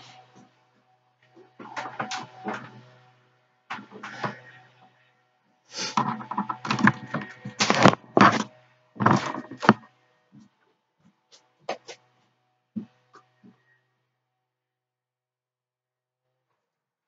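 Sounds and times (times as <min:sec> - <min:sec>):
rustling and knocking handling: 0:05.9 - 0:09.8.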